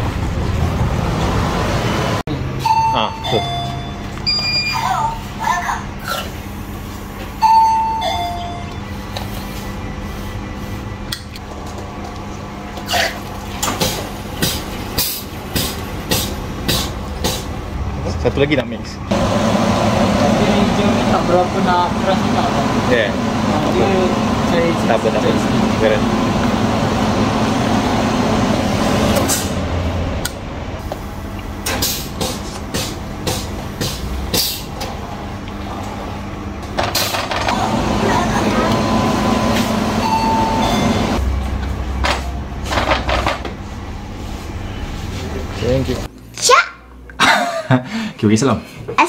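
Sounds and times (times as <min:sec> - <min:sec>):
two-note electronic door chime: 0:02.6 - 0:04.8, 0:07.4 - 0:08.9, 0:40.0 - 0:41.2
low machine hum: 0:03.4 - 0:46.1.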